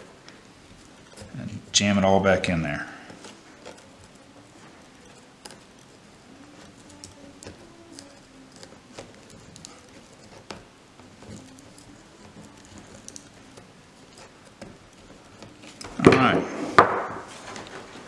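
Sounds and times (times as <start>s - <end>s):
pliers clicking and scraping metal: 3.2s - 16.3s.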